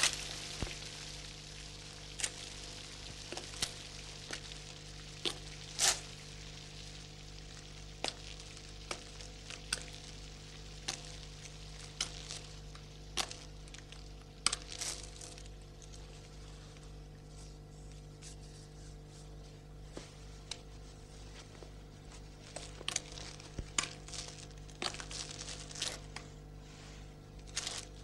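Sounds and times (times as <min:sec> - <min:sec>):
low hum and hiss: 0:00.0 - 0:28.0
film soundtrack clicks and pops: 0:07.4 - 0:16.0.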